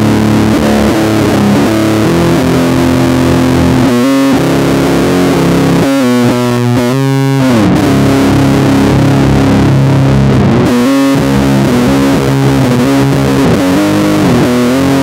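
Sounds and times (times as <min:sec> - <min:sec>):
electric bass metal riff: 0:00.0 - 0:15.0.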